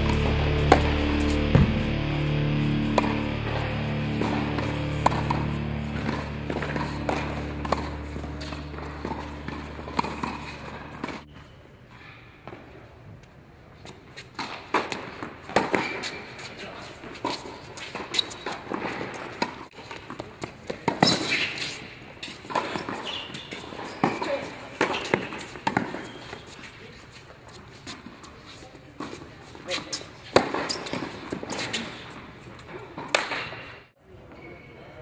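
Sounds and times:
background music: 0.0s - 11.1s
footsteps on tennis court: 0.0s - 11.5s, 13.8s - 33.2s
rackets hitting tennis ball: 0.0s - 11.5s, 13.8s - 33.8s.

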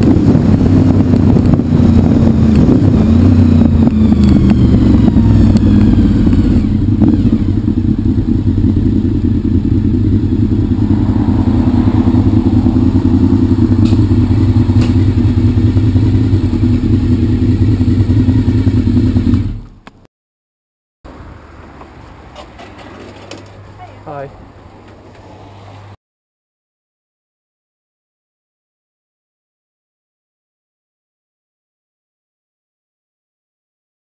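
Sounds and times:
motorcycle engine idling: 1.8s - 19.9s.

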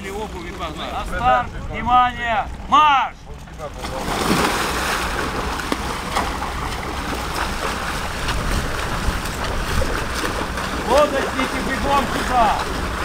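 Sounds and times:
wind rumbling on microphone: 0.9s - 2.7s, 4.0s - 13.0s
water splashing: 3.4s - 13.0s
swimmers thrashing through water: 3.7s - 13.0s.

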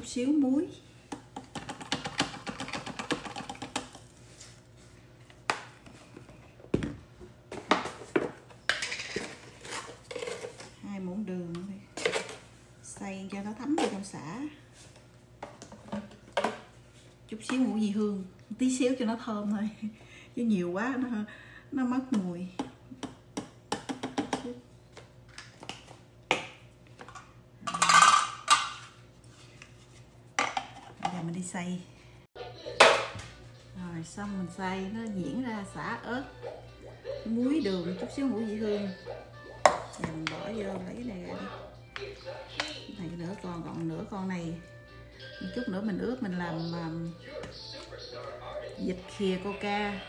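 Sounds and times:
containers knocking on countertop: 22.6s - 24.6s, 39.6s - 40.4s.

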